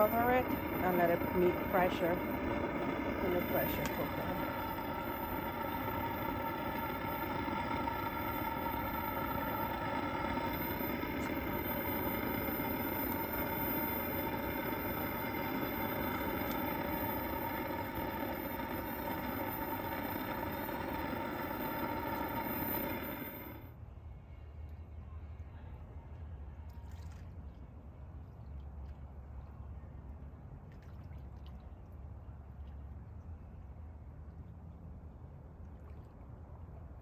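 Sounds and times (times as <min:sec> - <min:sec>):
pot boiling roar: 0:00.0 - 0:23.7
faint steady tones: 0:00.0 - 0:26.4.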